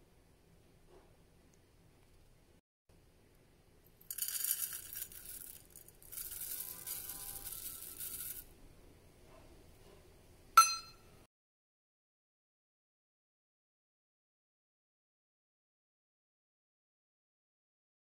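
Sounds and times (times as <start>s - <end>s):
oats pouring into a pot: 4.0s - 8.5s
sharp metallic clink: 10.6s - 11.1s.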